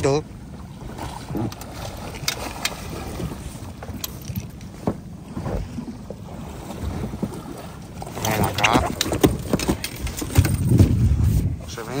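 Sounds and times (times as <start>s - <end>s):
wind on microphone: 5.3s - 12.0s.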